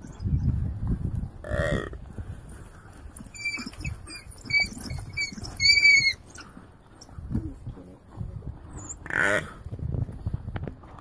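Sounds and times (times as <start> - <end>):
wild dogs chirping: 2.7 - 7.2.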